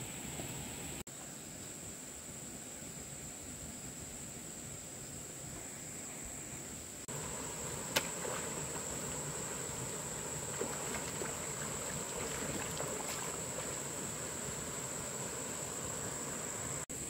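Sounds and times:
insects droning: 0.0s - 17.0s
person wading through water: 7.1s - 16.4s
stream rushing: 7.1s - 16.9s.

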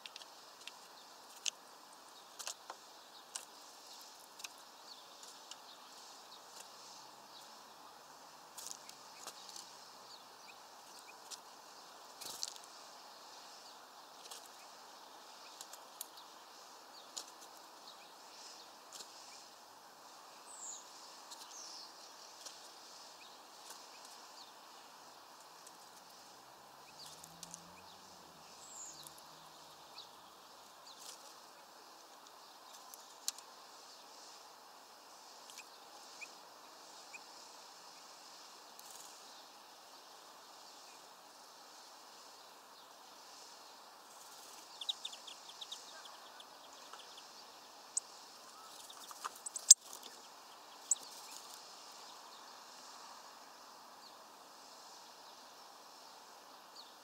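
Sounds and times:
faint outdoor hiss: 0.0s - 57.0s
high bird chirps: 48.0s - 51.4s.

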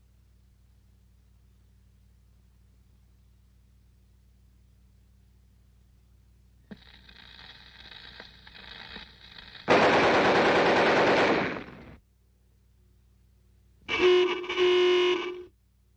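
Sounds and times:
cartoon machine-gun burst: 9.6s - 12.0s
loud pitched honk: 13.9s - 15.5s.

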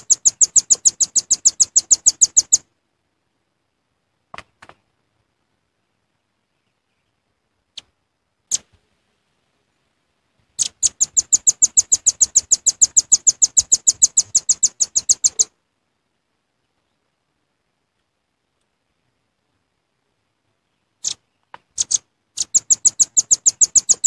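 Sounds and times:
bird call chips: 0.0s - 2.6s, 10.6s - 15.5s, 21.0s - 24.0s
high bird trill: 0.0s - 2.7s, 10.6s - 15.5s, 21.0s - 24.0s.

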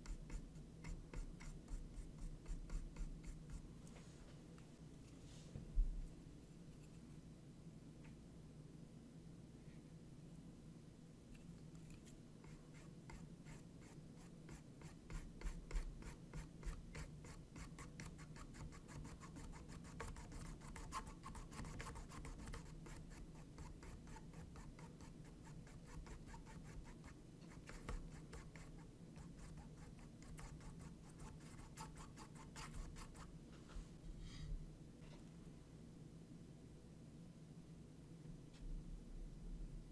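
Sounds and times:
paintbrush scratching on canvas: 0.0s - 4.3s, 11.7s - 33.3s.

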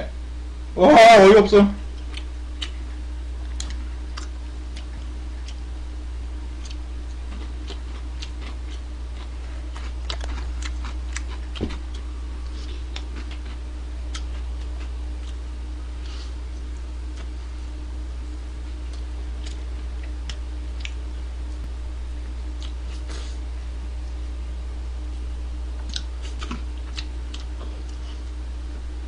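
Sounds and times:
steady low hum: 0.0s - 29.0s
crunchy chewing and mouth smacks: 1.9s - 5.7s, 6.4s - 17.4s, 18.7s - 21.7s, 22.4s - 23.4s, 25.7s - 28.4s.

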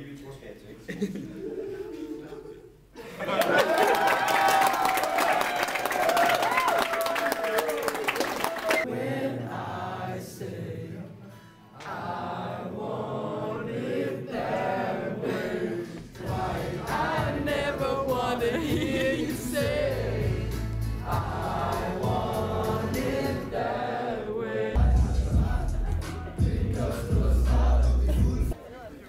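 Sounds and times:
choir singing with music: 8.8s - 28.6s.

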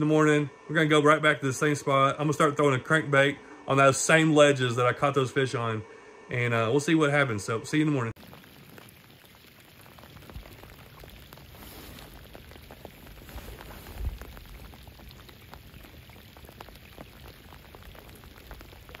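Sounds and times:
rain falling on lake: 8.2s - 19.0s.

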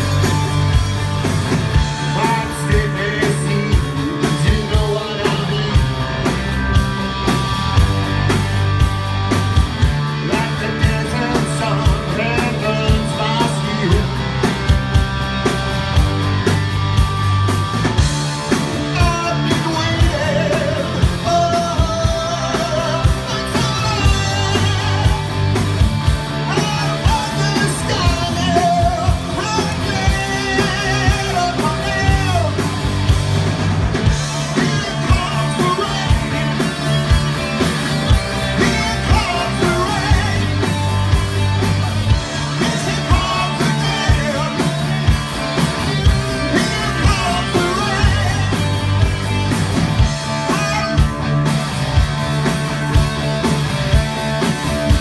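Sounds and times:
bass guitar: 0.0s - 55.0s
electric guitars: 0.0s - 55.0s
steady drum beat: 0.0s - 55.0s
man singing: 1.9s - 6.4s, 10.2s - 14.6s, 18.5s - 25.6s, 26.4s - 32.7s, 34.3s - 37.0s, 38.2s - 40.9s, 42.2s - 45.1s, 45.9s - 49.2s, 50.2s - 51.2s.

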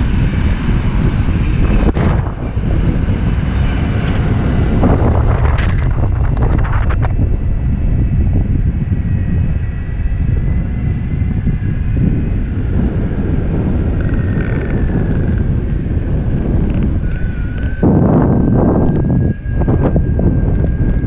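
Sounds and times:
longboard wheels rumbling: 0.0s - 21.0s
wind buffeting the microphone: 0.0s - 21.0s
faint high whine: 0.4s - 21.0s.

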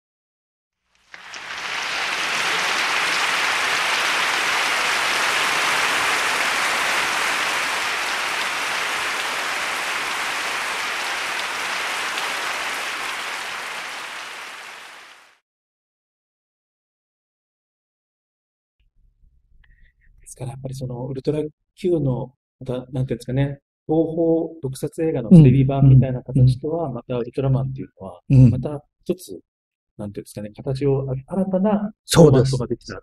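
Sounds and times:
crowd applauding: 1.1s - 15.4s.

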